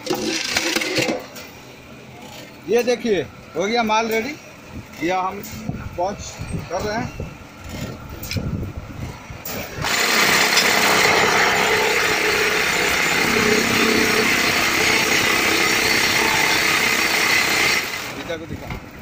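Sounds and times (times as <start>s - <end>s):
block making machine running: 9.4s - 19.0s.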